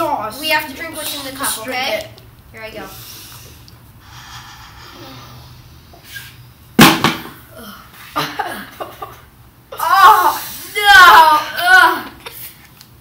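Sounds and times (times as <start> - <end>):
boy making disgusted sounds: 4.8 - 5.6, 9.7 - 12.6.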